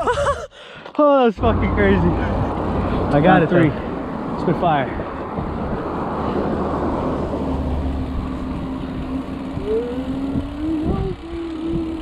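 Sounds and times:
bike tyre noise on pavement: 1.4 - 12.0
wind rush on microphone: 2.0 - 12.0
steady hum: 7.6 - 12.0.

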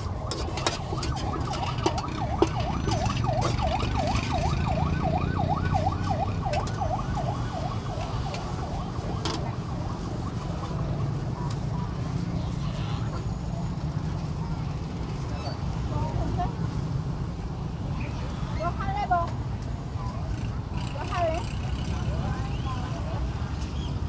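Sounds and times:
siren wailing: 0.0 - 11.1
low street rumble: 0.0 - 24.0.

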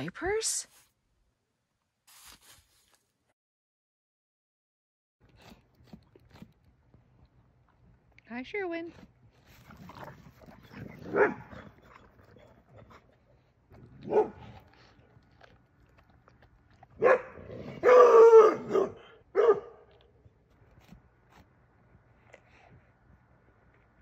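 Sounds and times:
dogs barking: 10.6 - 12.0, 13.9 - 14.9, 16.9 - 20.0.

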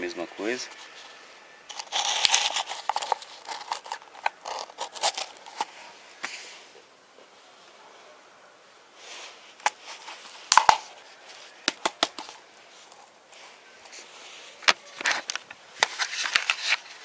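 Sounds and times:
plastic pot crackling and clicking: 1.7 - 5.7, 10.5 - 10.9, 11.6 - 12.4, 14.6 - 17.0.

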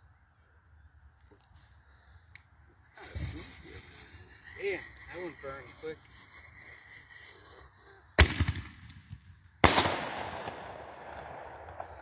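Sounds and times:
firework bangs: 8.2 - 12.0.

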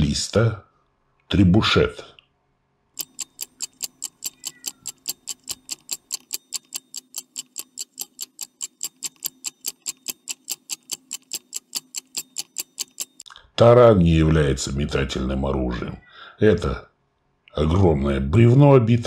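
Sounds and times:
stopwatch ticking: 3.0 - 13.3.

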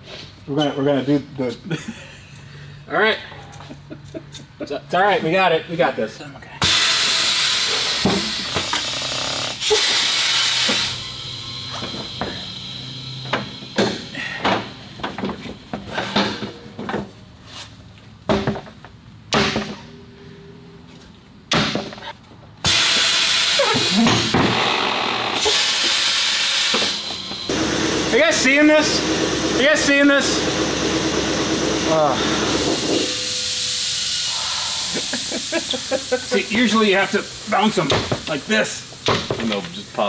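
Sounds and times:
compressed air hissing: 6.6 - 15.0, 22.6 - 24.4, 25.4 - 40.0
tire knocks and thumps: 13.2 - 17.2, 18.2 - 19.9.

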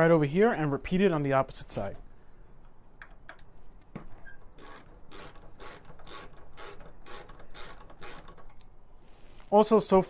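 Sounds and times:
hand ratchet clicking: 4.3 - 8.8.

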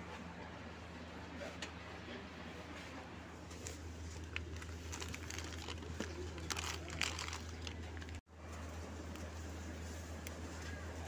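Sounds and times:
plastic packets crinkling: 4.0 - 8.2.

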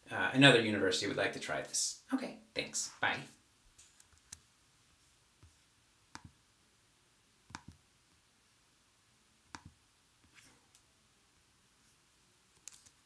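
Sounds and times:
computer mouse clicks: 7.5 - 7.8, 9.5 - 9.8, 12.6 - 13.0.

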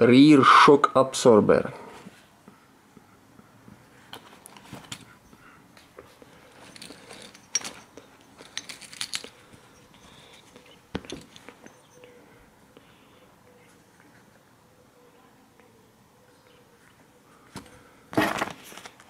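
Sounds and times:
handling rustles and clicks: 4.1 - 12.0, 17.5 - 19.0.

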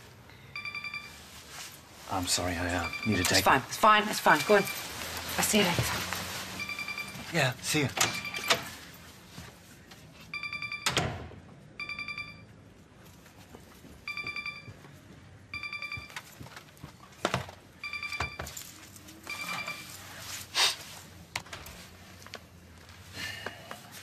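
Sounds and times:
video-call ringtone trilling: 2.8 - 3.5, 11.8 - 12.4, 19.3 - 19.9.

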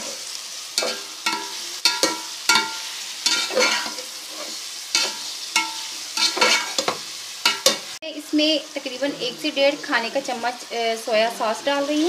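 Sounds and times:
food sizzling in pot: 0.0 - 12.0
spoon scraping and knocking pot: 0.8 - 7.8.

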